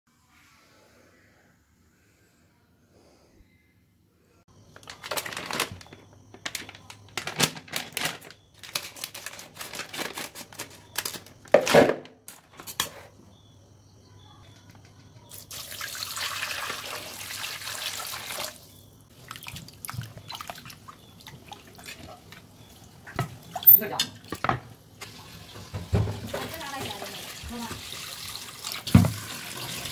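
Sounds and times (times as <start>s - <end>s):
plastic packet crinkling: 4.7s - 11.6s
water running from tap: 15.3s - 18.6s, 19.2s - 29.9s
chicken sloshed in water: 15.3s - 22.3s.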